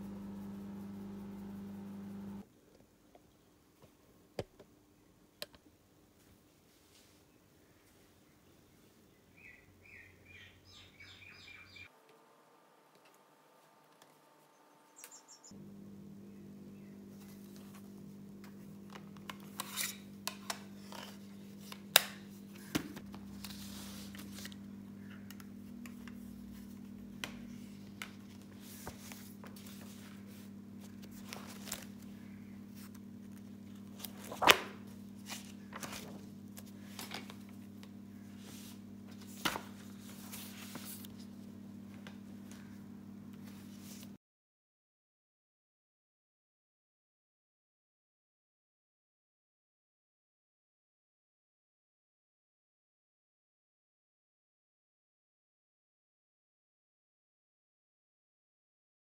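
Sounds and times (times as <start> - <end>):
steady low hum: 0.0 - 2.5, 12.2 - 44.2
paper rustling: 17.1 - 42.7.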